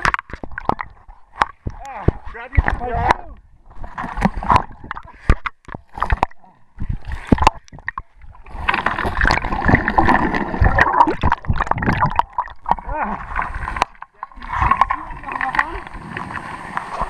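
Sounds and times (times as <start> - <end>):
muffled underwater knocks: 0.0 - 8.2
rushing bubbling water: 0.0 - 17.0.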